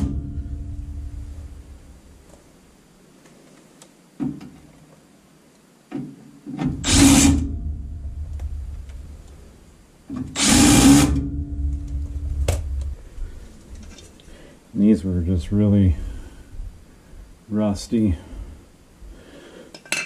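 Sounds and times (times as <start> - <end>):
cordless power driver running: 10.4 - 11.3.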